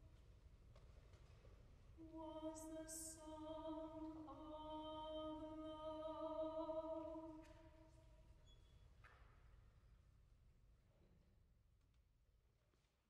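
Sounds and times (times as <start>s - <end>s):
choir singing a cappella: 2.0s - 7.5s.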